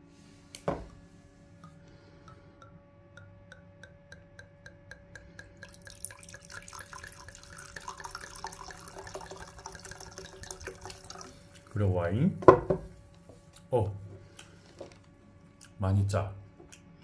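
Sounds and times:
liquid dripping and trickling: 1.6 - 11.8.

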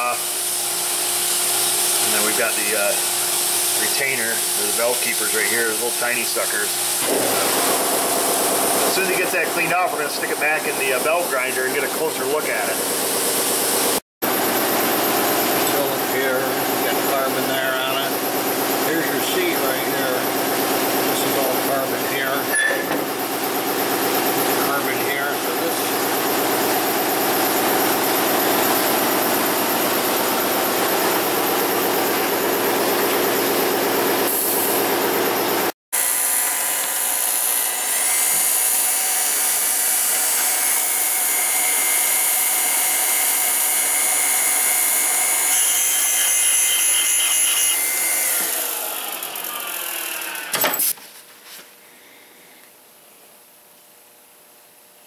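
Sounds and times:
shop machinery running: 0.0 - 51.0
valve grinder grinding: 36.0 - 50.6.

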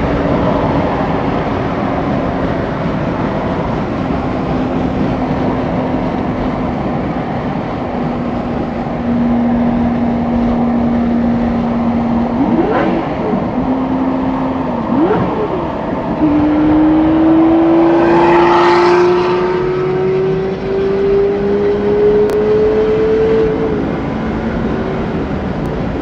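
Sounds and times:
sports car engine revving: 0.0 - 25.9.

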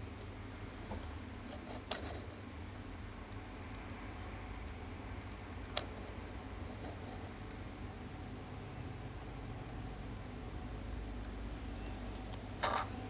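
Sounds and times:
sharp clicks: 1.9 - 6.9, 9.2 - 12.6.

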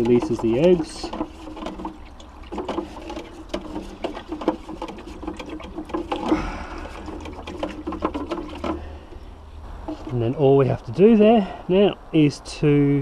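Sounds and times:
cane knocking against can: 0.0 - 8.9
water sloshing in a watering can: 0.0 - 11.6.

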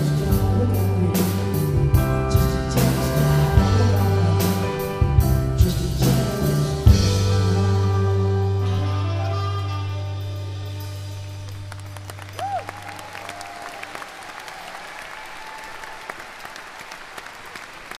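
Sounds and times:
audience applause: 11.5 - 18.0.

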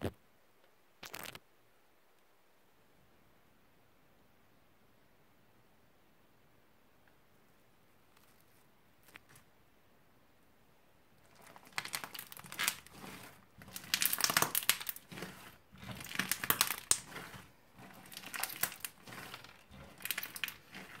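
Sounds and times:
hands squishing slime: 11.3 - 21.0.

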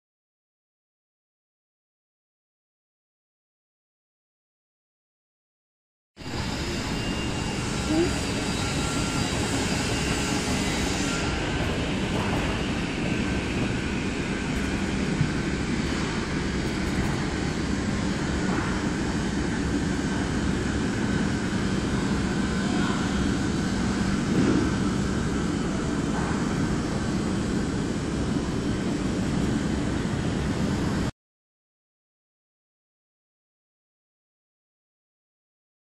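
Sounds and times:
low mechanical hum: 6.2 - 31.1.

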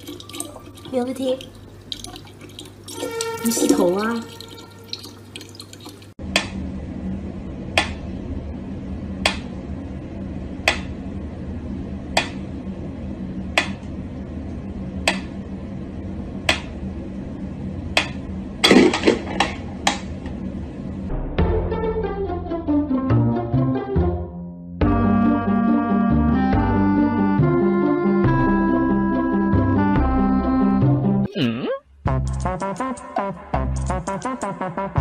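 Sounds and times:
low steady hum: 0.0 - 21.3.

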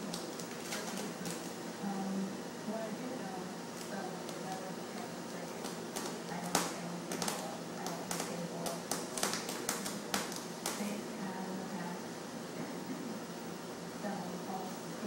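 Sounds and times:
claws tapping on chair frame: 5.6 - 11.0.

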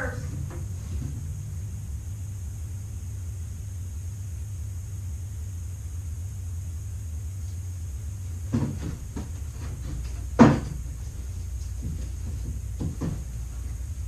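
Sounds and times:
low background hum: 0.0 - 14.0
dog knocking against chair: 8.5 - 10.9, 11.8 - 13.4.

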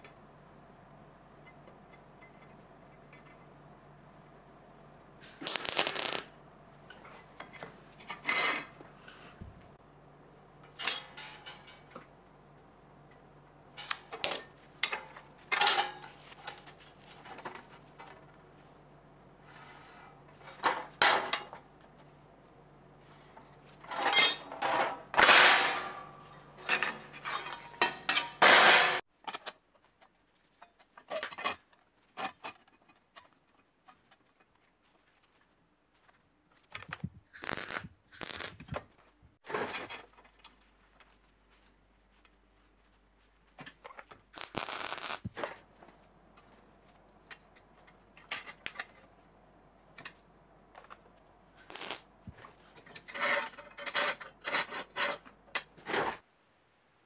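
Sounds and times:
steady low hum: 0.0 - 29.0
welder crackling: 5.2 - 6.4, 37.2 - 38.9, 44.3 - 45.6, 51.6 - 52.4
metal clanks and rattles: 10.6 - 12.1, 13.7 - 18.4, 23.8 - 29.5, 52.4 - 55.8.

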